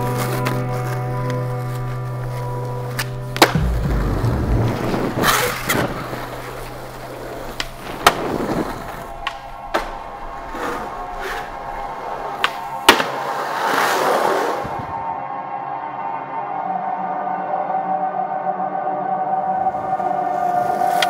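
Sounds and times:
skateboard wheels rolling on asphalt: 0.0 - 15.2, 19.6 - 21.0
background music: 0.0 - 21.0
skateboard clacks: 0.1 - 4.3, 5.2 - 14.2.

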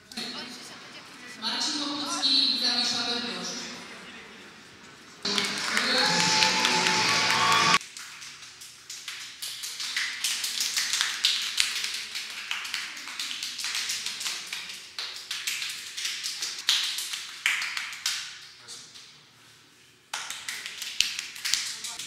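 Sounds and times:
loud speech: 0.0 - 4.4, 5.3 - 7.8
music: 5.3 - 7.8.

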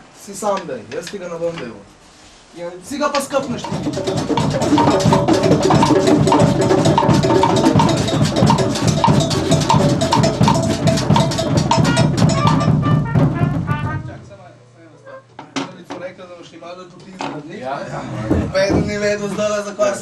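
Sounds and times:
drum kit playing fast: 2.9 - 14.4.

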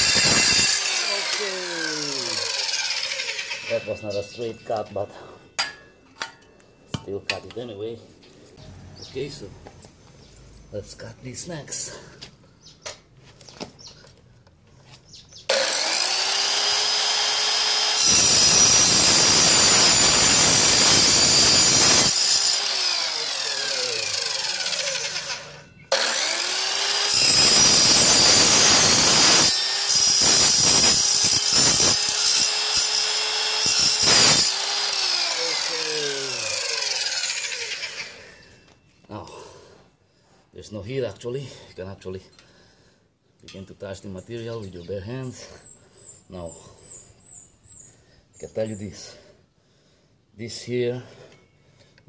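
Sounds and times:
circular saw cutting steel: 0.0 - 6.5, 15.5 - 38.6.

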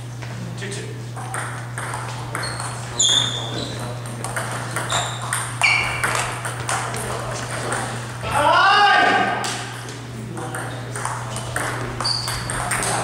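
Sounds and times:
table tennis ball clicking: 10.4 - 13.0.

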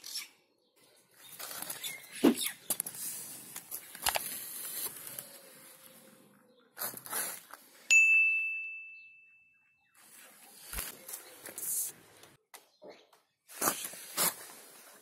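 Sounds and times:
notification bell ding: 7.9 - 9.6.

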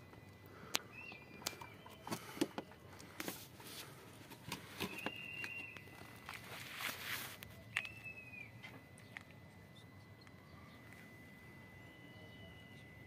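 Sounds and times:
high thin whistle: 4.8 - 5.9.

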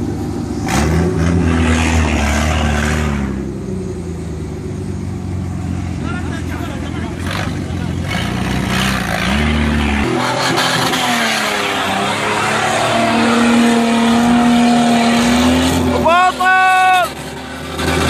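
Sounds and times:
car engine revving hard: 0.6 - 3.5, 7.0 - 18.0.

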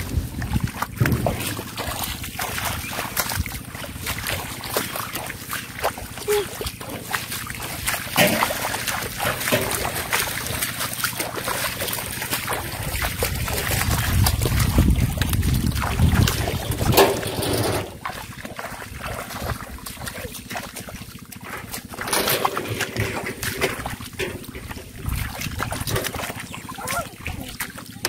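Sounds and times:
wind rumble on microphone: 0.0 - 4.5, 12.4 - 20.5, 23.0 - 26.4
feet splashing through water: 0.0 - 28.0.

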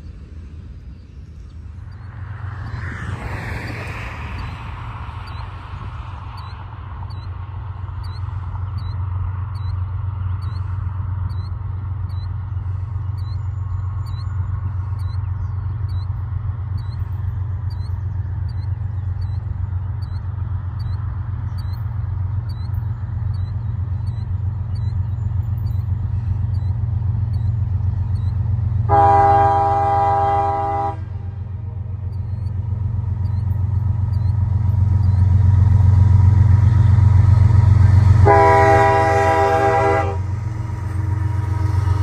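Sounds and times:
train rumble: 0.0 - 42.0
locomotive air horn blast: 28.9 - 31.4, 38.2 - 42.0.

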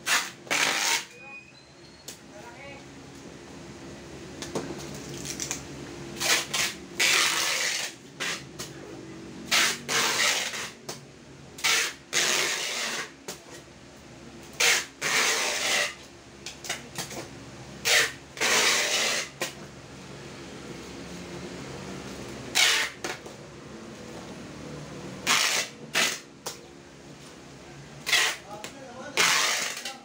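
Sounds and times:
packing tape ripping off dispenser: 0.0 - 1.1, 4.9 - 5.6, 6.2 - 8.5, 9.5 - 10.8, 11.6 - 13.1, 14.5 - 16.0, 17.8 - 19.6, 22.5 - 23.2, 25.2 - 26.3, 28.0 - 28.5, 29.2 - 30.0.

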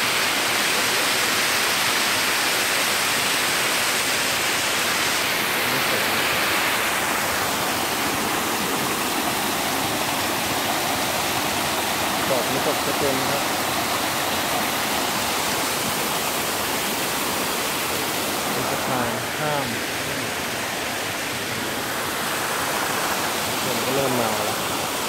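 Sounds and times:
waterfall rushing over rocks: 0.0 - 25.0.

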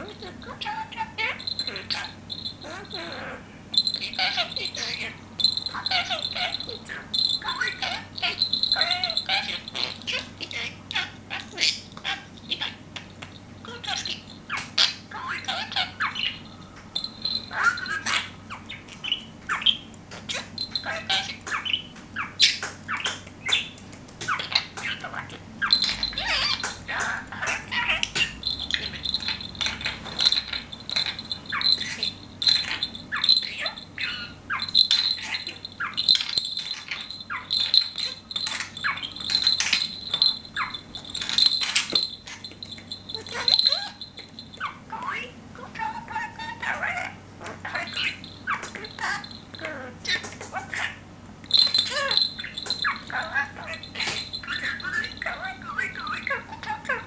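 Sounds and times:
small jingle bell ringing: 0.0 - 19.6, 20.2 - 21.8, 25.6 - 47.0, 47.7 - 50.2, 50.8 - 57.0
budgerigar chattering and warbling: 17.2 - 51.0, 51.6 - 57.0.

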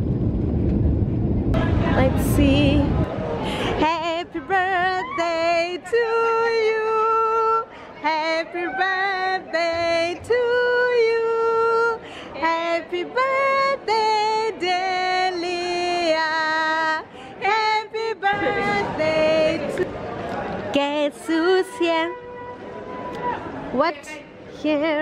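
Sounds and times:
woman singing slow melody: 3.8 - 19.8.

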